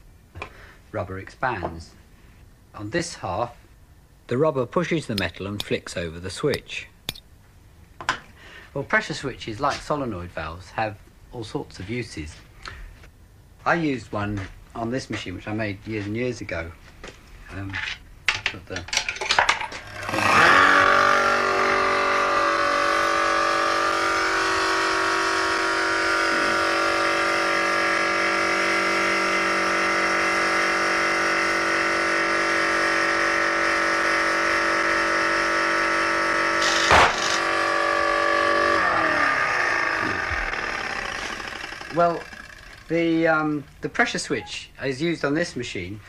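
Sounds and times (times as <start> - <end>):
electric motor running: 19.7 - 43.6.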